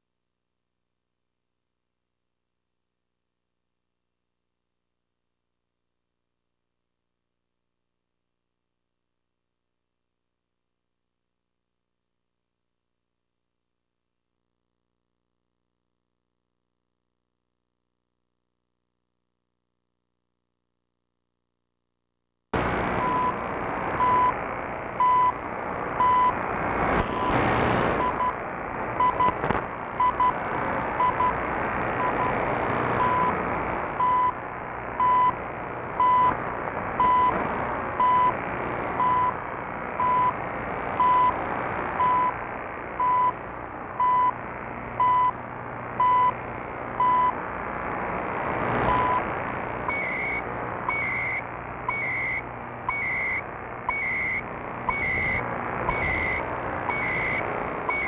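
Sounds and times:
radio static hiss: 22.6 - 58.0
high-pitched data tones: 49.9 - 58.0
time signal beeps: 49.9 - 58.0.

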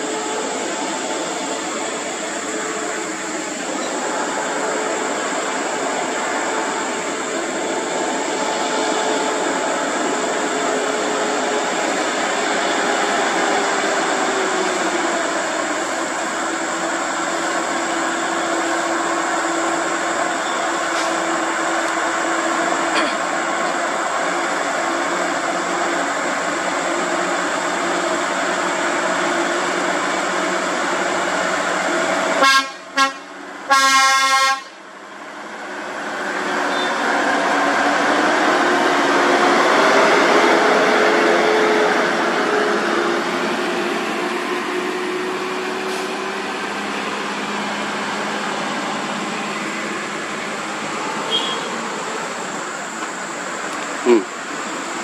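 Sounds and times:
truck diesel engine: 0.0 - 55.0
truck horn: 32.4 - 34.8, 51.2 - 51.8.

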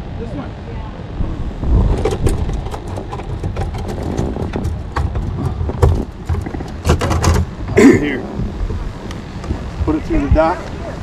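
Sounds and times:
wind rumble on microphone: 0.0 - 11.0
knocks of gear in boat: 1.7 - 10.0.

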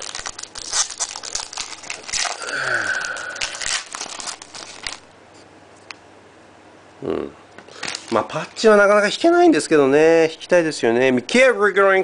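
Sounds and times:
foil wrapper crinkling and tearing: 0.0 - 5.1, 7.7 - 8.8.

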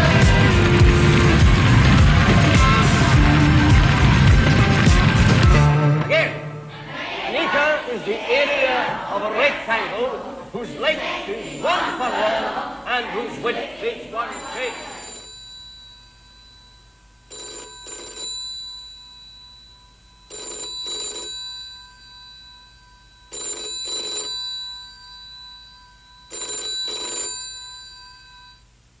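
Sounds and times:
telephone bell ringing: 14.3 - 28.8.

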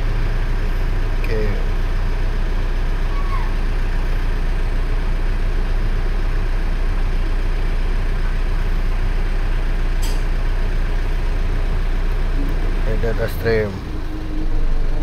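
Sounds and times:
diesel engine idling: 0.0 - 15.0
brief click: 10.0 - 10.2.

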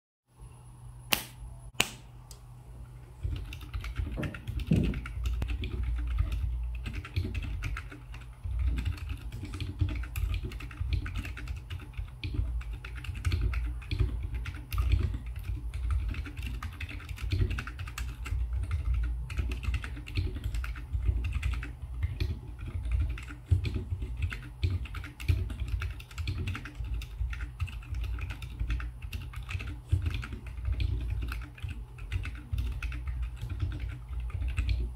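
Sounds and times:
sharp clicks: 1.1 - 2.4
mechanical keyboard typing: 3.2 - 34.9.

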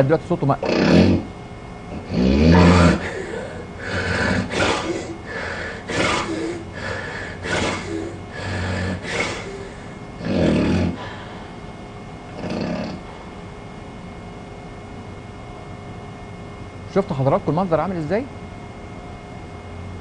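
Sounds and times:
man choking snore: 0.6 - 1.3, 1.9 - 11.1, 12.3 - 13.1
rough snoring breaths: 0.6 - 1.3, 1.9 - 11.6, 12.4 - 13.2.

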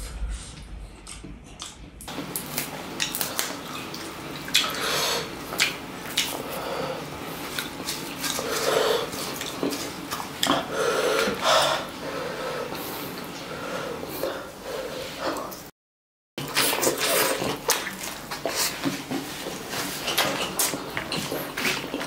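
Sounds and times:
wet chewing: 1.0 - 11.9, 16.4 - 22.0.

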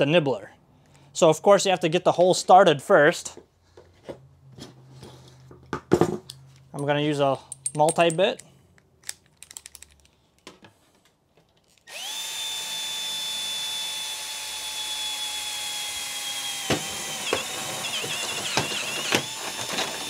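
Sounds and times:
drill bit cutting metal: 11.9 - 20.0
drill whining: 11.9 - 20.0.

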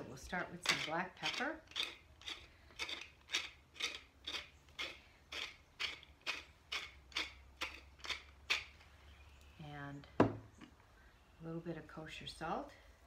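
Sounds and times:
pepper mill grinding: 0.2 - 8.8.

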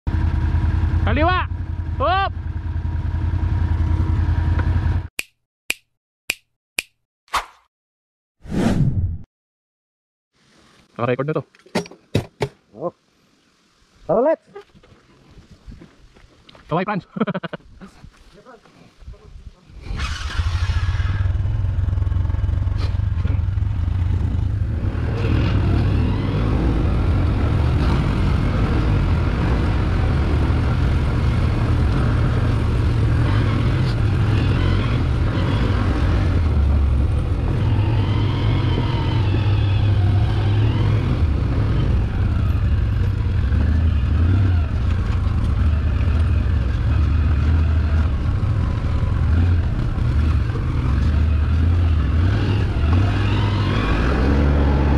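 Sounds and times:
atv engine rumbling: 0.1 - 5.1, 19.7 - 54.9.

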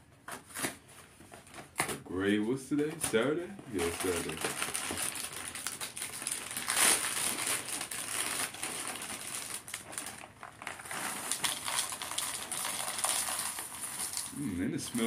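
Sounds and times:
plastic bag crinkling: 3.0 - 15.0.

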